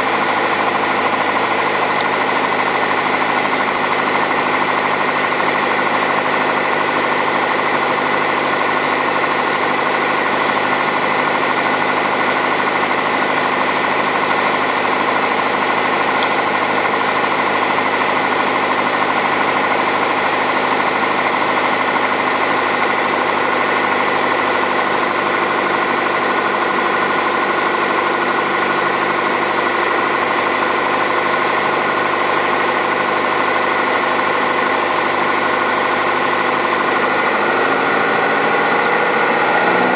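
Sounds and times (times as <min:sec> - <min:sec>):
airplane engine drone in cockpit: 0:34.3 - 0:39.9.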